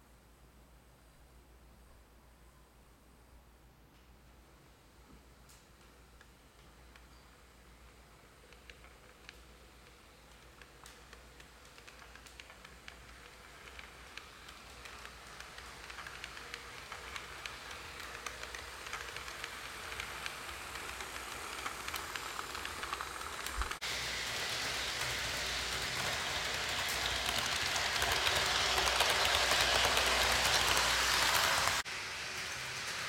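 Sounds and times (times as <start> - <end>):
small track clicks: 5.5 - 33.0
model train whirring on track: 6.2 - 33.0.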